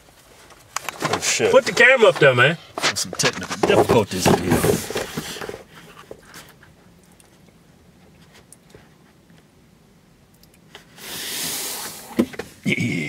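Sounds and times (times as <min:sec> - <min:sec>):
paper bag rustling: 0:00.3 - 0:06.5.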